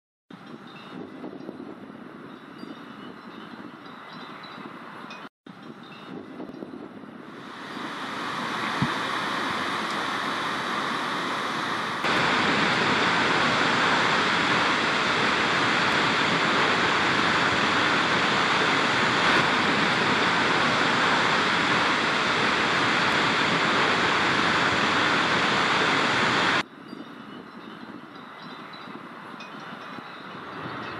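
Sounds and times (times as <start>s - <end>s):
waterfall rushing: 7.4s - 26.6s.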